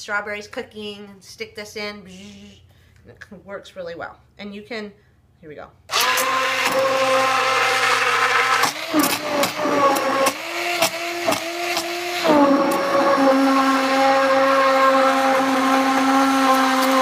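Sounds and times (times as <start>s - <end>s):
immersion blender motor whine: 5.9s - 17.0s.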